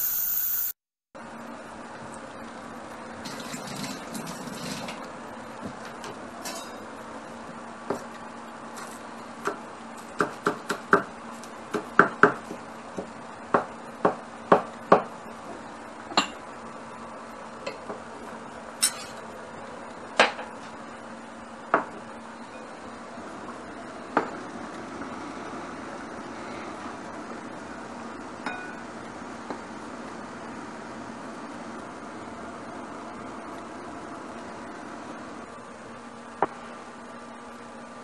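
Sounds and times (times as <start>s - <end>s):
metal pots and dishes clinking: 6.4s - 6.8s, 18.8s - 19.2s.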